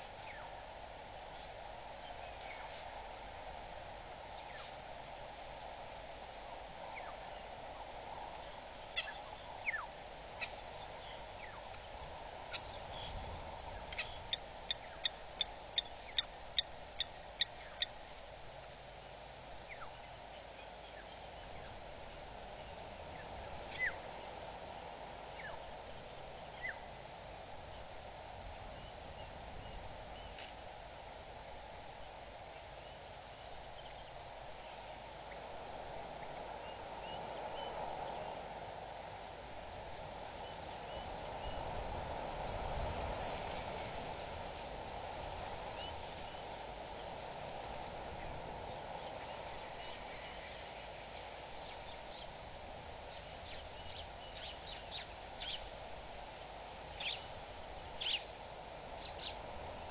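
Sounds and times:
steady background hiss: 0.0s - 59.9s
evenly spaced bird call notes: 13.9s - 18.0s.

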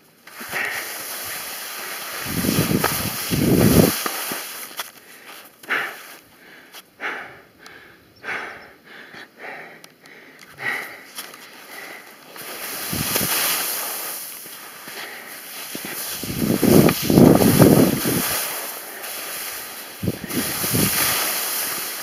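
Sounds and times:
skis scraping over snow: 0.0s - 6.3s, 11.1s - 22.0s
wind rumbling on microphone: 2.2s - 4.0s, 12.8s - 13.6s, 15.8s - 18.5s, 20.0s - 21.2s.

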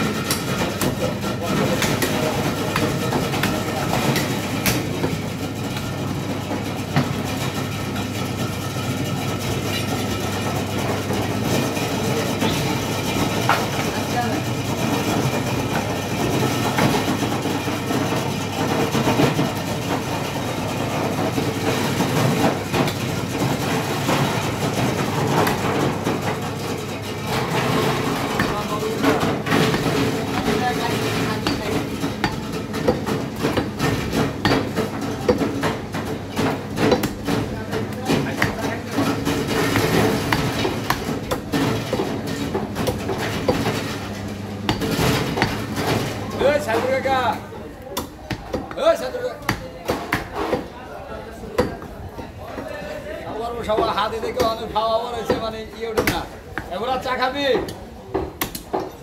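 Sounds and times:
crowd and stall noise: 0.0s - 59.0s
cleaver chopping meat on wood: 0.1s - 5.2s, 31.4s - 36.0s, 36.8s - 37.4s, 39.7s - 42.1s, 48.0s - 50.7s, 55.3s - 56.7s, 57.6s - 58.9s.

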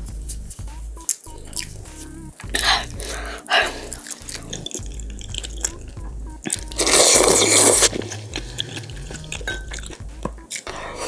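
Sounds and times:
chewing: 0.3s - 11.0s
wet mouth clicks: 0.3s - 11.0s
loud wet bite: 2.4s - 11.0s.

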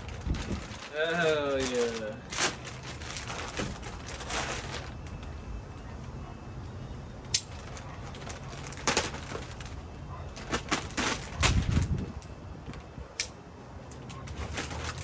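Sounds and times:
plastic wrapping crinkling: 0.0s - 5.5s, 7.4s - 12.9s, 14.0s - 15.0s.

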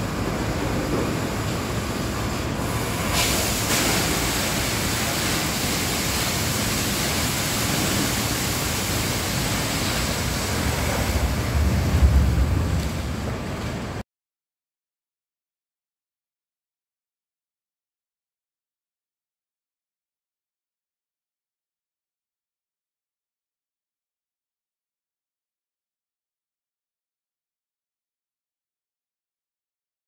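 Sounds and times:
water jet spraying: 0.0s - 13.9s
low rumble: 10.6s - 14.0s.

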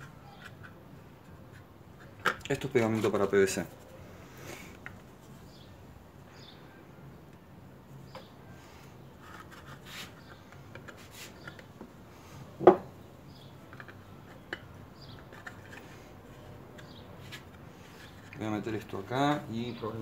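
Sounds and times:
small clicks and rubbing: 13.6s - 16.0s.

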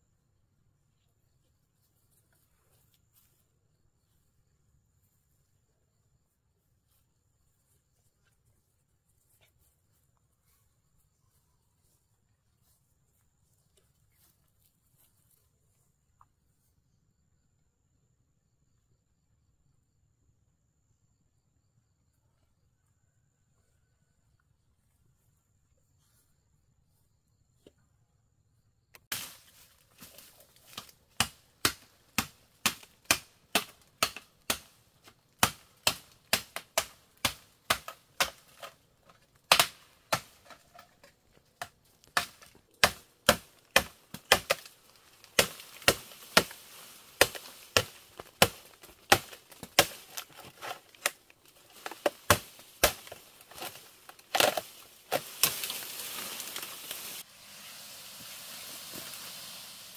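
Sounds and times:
machete chopping bamboo: 29.1s - 29.4s, 30.0s - 57.2s
rustling of leaves: 29.1s - 59.9s.

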